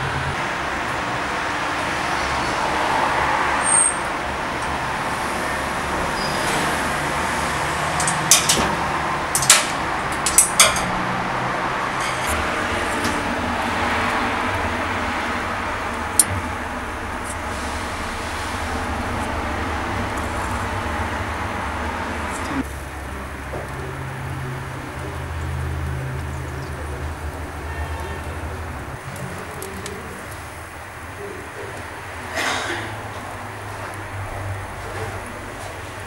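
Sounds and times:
metal rod clinking on steel: 0:08.0 - 0:08.7, 0:09.4 - 0:11.0
steady background rumble: 0:12.5 - 0:23.2.

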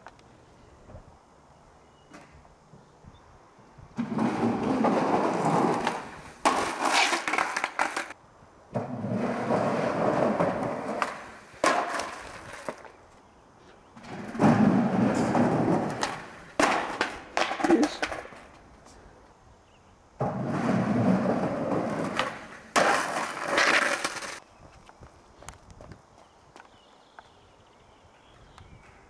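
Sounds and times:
skateboard wheels rolling: 0:03.6 - 0:29.0
skateboard clack: 0:04.0 - 0:13.0, 0:14.0 - 0:18.6, 0:20.2 - 0:24.4.

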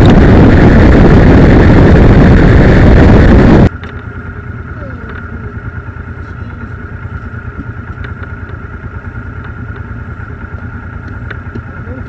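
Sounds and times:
motorcycle engine idling: 0:03.7 - 0:12.0.

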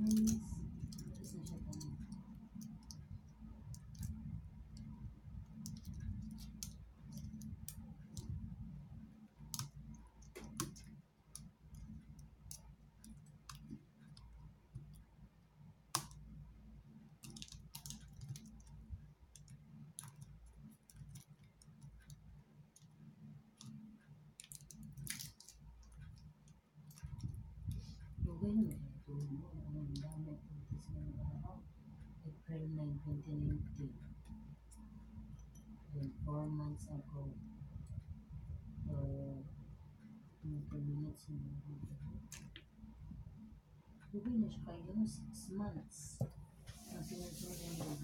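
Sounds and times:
light clicks and taps: 0:00.0 - 0:08.8, 0:09.4 - 0:16.4, 0:17.2 - 0:32.1, 0:38.8 - 0:43.1
low steady hum: 0:00.0 - 0:48.0.

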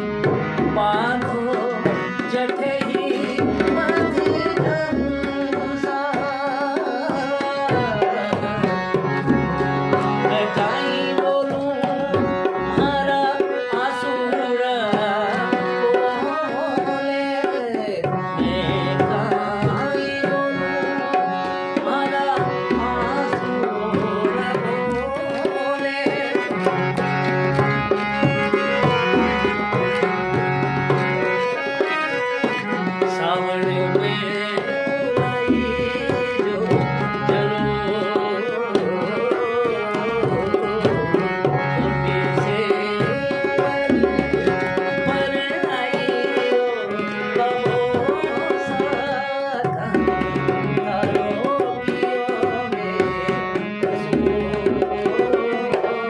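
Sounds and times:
harmonium: 0:00.0 - 0:56.0
man singing: 0:00.0 - 0:56.0
drum accompaniment: 0:22.4 - 0:34.1.

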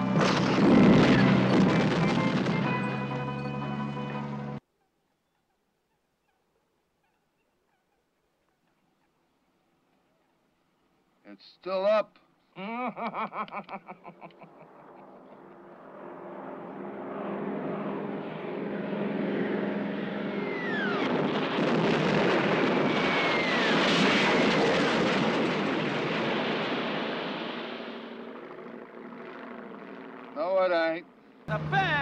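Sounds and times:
explosion blast and rumble: 0:00.0 - 0:03.0, 0:20.6 - 0:28.2
propeller plane engines: 0:00.0 - 0:04.6, 0:13.0 - 0:32.0
falling bomb whistles: 0:20.3 - 0:28.0.

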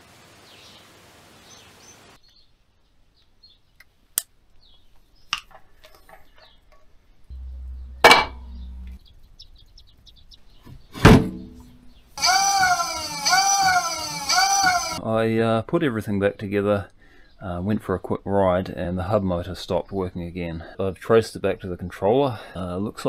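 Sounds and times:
low hum: 0:07.3 - 0:10.3.

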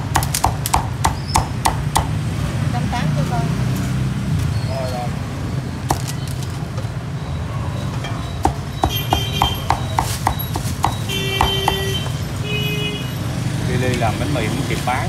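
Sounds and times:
cleaver chopping on wooden block: 0:00.0 - 0:02.2, 0:05.9 - 0:06.2, 0:08.4 - 0:12.2.

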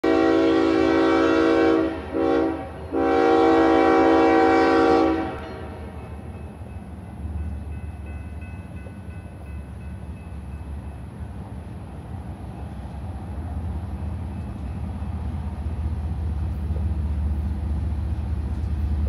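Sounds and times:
locomotive air horn blasts: 0:00.0 - 0:06.0
train rumble: 0:00.0 - 0:19.0.

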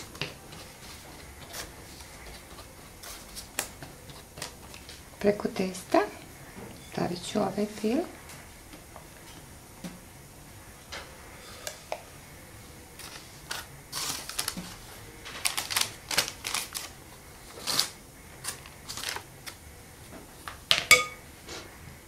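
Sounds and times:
baking paper crinkling: 0:00.0 - 0:06.1, 0:12.9 - 0:20.6.

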